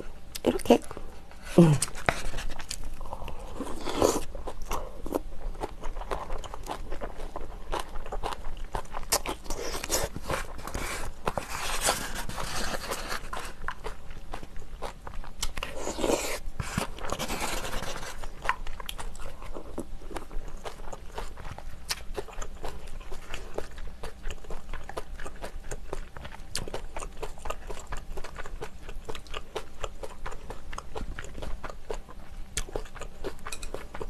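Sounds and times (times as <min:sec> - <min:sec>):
chewing with wet mouth clicks: 0:04.1 - 0:10.3, 0:13.3 - 0:17.2, 0:18.2 - 0:34.0.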